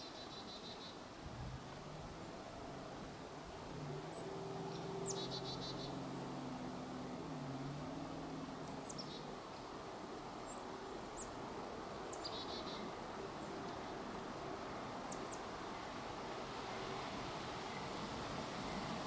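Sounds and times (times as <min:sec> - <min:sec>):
distant locomotive hum: 0:01.0 - 0:19.0
small birds chirping: 0:04.1 - 0:06.0, 0:08.6 - 0:09.4.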